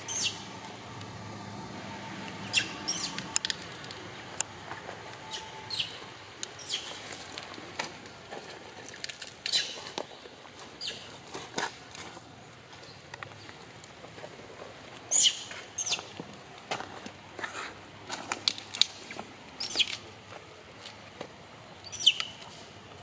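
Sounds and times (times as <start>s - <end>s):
baby monkey squeaking: 0.1s - 0.4s, 2.4s - 3.2s, 5.3s - 6.0s, 6.6s - 6.9s, 15.1s - 16.1s, 19.6s - 19.9s, 21.8s - 22.3s.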